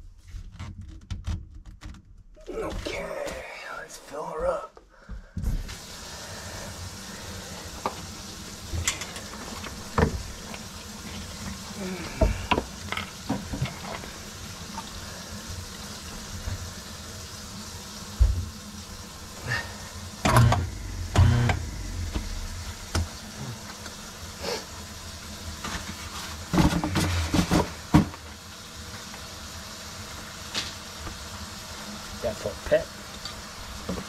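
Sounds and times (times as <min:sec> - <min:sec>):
faucet running into sink: 0:05.6 - 0:31.3
knocks and clunks: 0:20.2 - 0:23.2.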